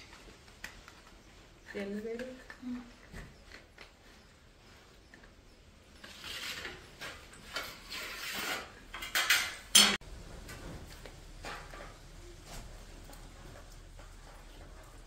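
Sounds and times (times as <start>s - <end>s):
metal clinking and scraping: 5.5s - 10.0s
sharp metal clank: 9.1s - 10.0s.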